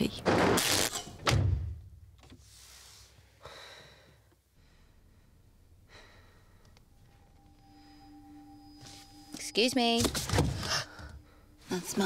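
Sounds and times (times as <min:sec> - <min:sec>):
woman breathing and sighing: 0:02.7 - 0:08.7, 0:10.5 - 0:11.9.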